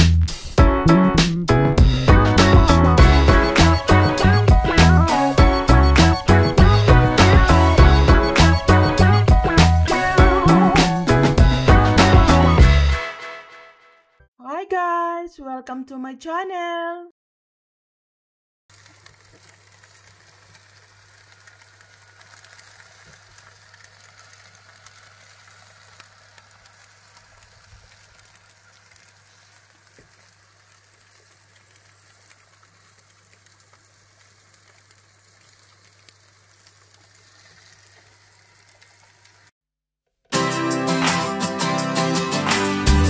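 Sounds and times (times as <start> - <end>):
food sizzling in a pan: 2.4 - 12.6, 18.7 - 39.5.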